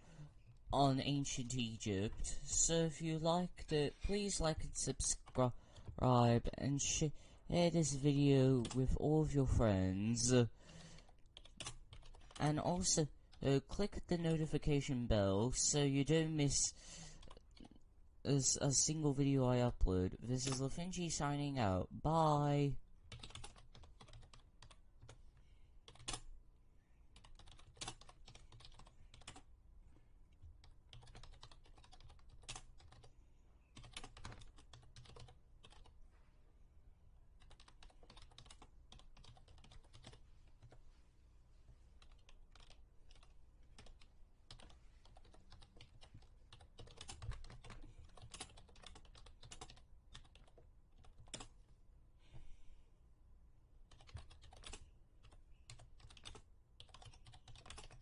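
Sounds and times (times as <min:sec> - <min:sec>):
typing on computer keyboard: 0:11.0 - 0:12.4, 0:23.1 - 0:25.2, 0:25.9 - 0:26.3, 0:27.2 - 0:29.5, 0:30.6 - 0:33.1, 0:33.7 - 0:35.9, 0:37.4 - 0:40.8, 0:42.0 - 0:51.5, 0:53.9 - 0:58.0.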